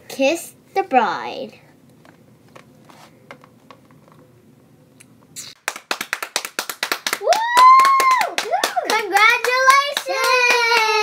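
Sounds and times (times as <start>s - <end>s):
quick hand clapping: 5.6s - 11.0s.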